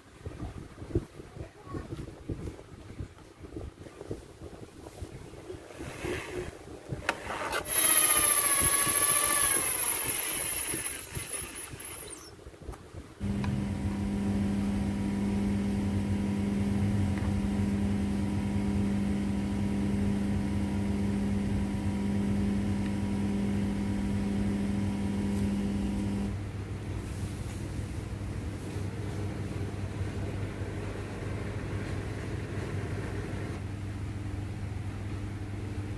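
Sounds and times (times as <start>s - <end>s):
electric drill whining: 7.5s - 12.3s
steady low hum: 13.0s - 35.9s.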